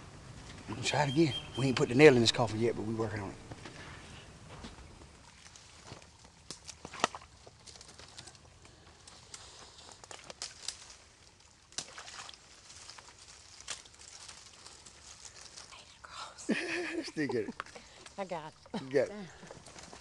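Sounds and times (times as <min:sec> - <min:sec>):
branches rustling: 0:00.0 - 0:20.0
footsteps through wet leaves: 0:04.4 - 0:15.9, 0:19.2 - 0:20.0
twigs snapping: 0:05.5 - 0:15.7.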